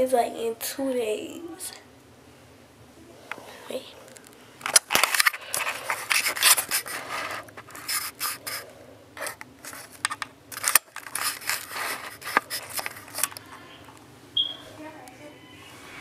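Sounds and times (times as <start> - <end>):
camera handling noise: 4.1 - 8.6, 9.2 - 13.4
rubbing and scraping on camera: 4.9 - 13.4.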